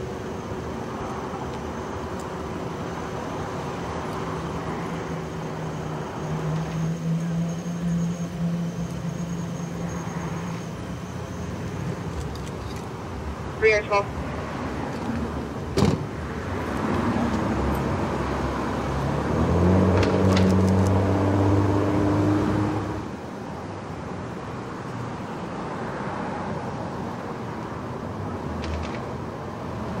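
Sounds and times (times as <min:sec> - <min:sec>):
street traffic: 0:00.0 - 0:30.0
vehicle engine running loudly: 0:14.2 - 0:23.2.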